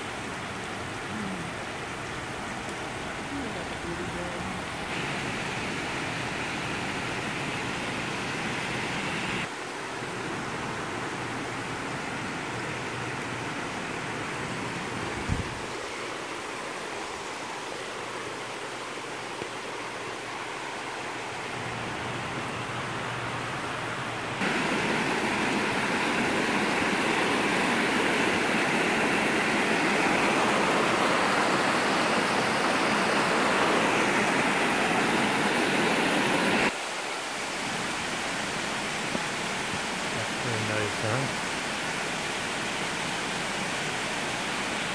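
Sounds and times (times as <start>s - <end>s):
creek water rushing over rocks: 0.0s - 44.9s.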